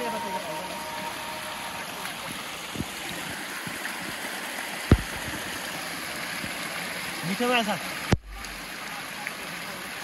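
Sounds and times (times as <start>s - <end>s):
stream water running: 0.0s - 10.0s
sharp knock: 4.9s - 5.4s.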